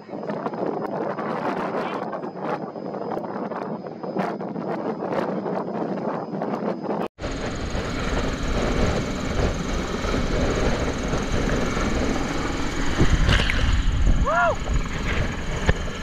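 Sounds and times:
wind noise: 0.0 - 16.0
helicopter hovering overhead: 6.9 - 16.0
downwash buffeting microphone: 7.2 - 16.0.

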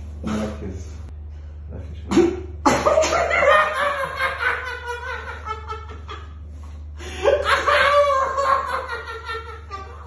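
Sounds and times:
man laughing hysterically: 2.7 - 6.4, 7.0 - 10.0.

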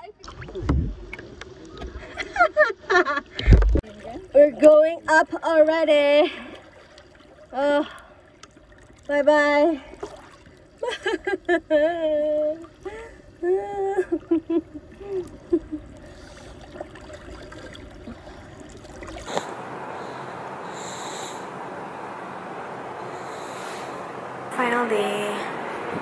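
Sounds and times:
water lapping: 5.8 - 10.8, 14.9 - 26.0
steady hiss: 19.3 - 26.0
swimmers calling out: 19.3 - 26.0.

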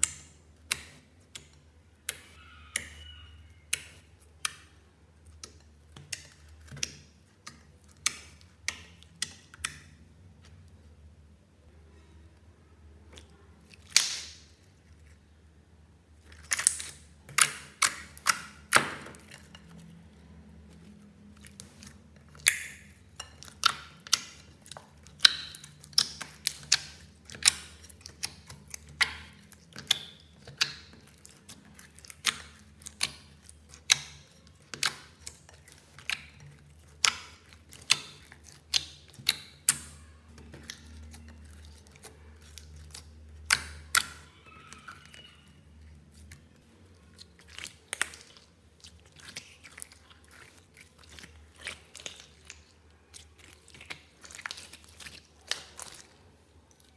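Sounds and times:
sticky slime pops and clicks: 13.8 - 14.4.

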